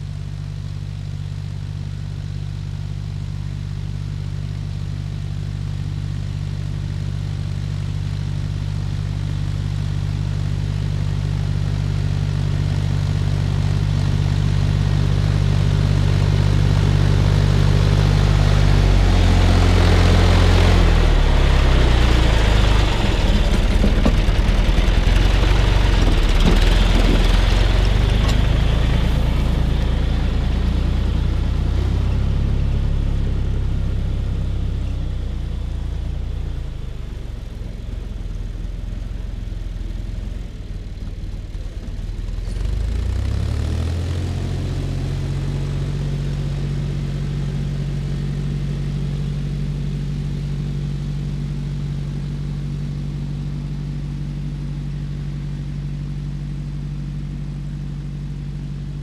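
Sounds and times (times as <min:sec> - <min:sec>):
tractor diesel engine under load: 0:07.3 - 0:59.0
soil rushing from plough: 0:21.9 - 0:32.0.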